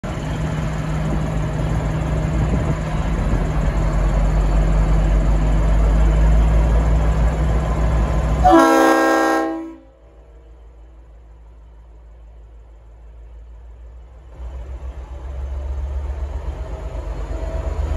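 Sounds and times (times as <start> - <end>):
diesel engine rumbling: 0.0 - 17.9
locomotive horn chord: 8.4 - 10.3.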